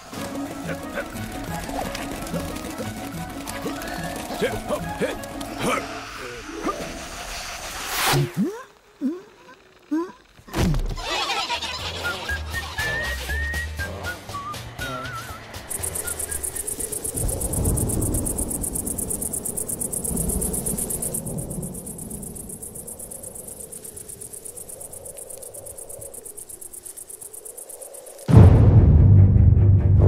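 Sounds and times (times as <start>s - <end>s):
crickets chirring: 0.0s - 7.8s, 14.4s - 28.3s
low music hit: 28.3s - 30.0s.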